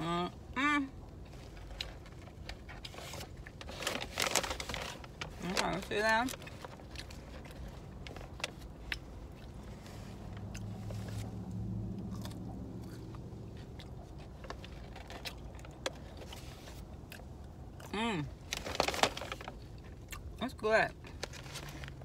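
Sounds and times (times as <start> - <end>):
low steady hum: 0.0 - 22.0
person chewing food: 6.4 - 18.0.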